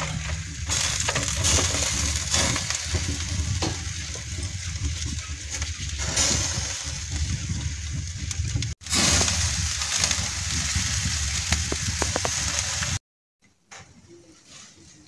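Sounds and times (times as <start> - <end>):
low rumble: 0.0 - 13.0
food sizzling on a grill: 0.1 - 7.4, 8.8 - 13.0.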